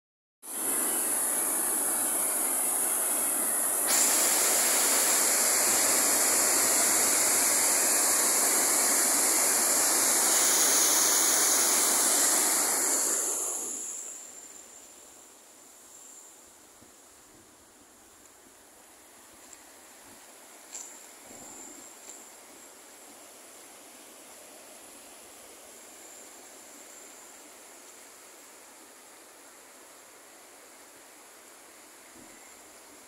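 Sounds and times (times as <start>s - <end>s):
waterfall rushing: 0.5s - 14.0s.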